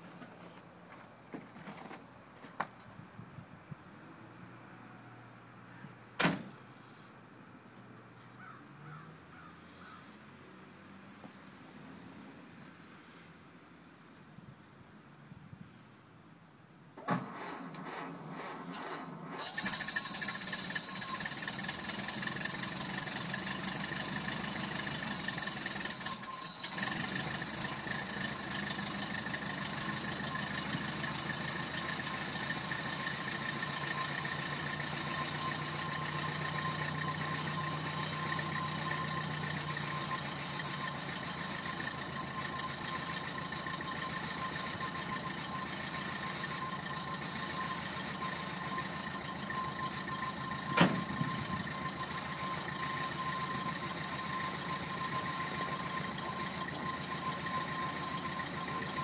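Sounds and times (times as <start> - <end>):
car engine idling: 19.1 - 59.0.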